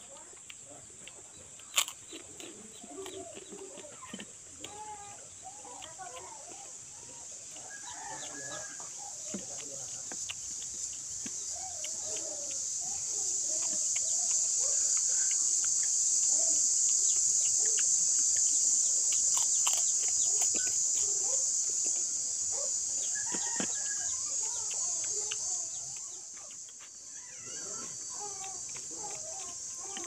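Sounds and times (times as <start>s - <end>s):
high-pitched insect chorus: 0.0s - 30.0s
chickens clucking: 0.8s - 18.5s.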